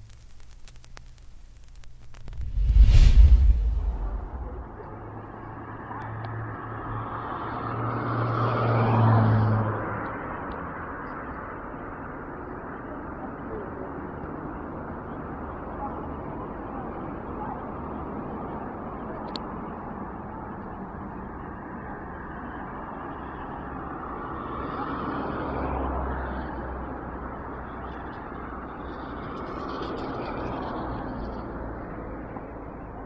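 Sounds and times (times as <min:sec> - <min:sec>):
outdoor rushing noise: 0:02.2 - 0:06.6.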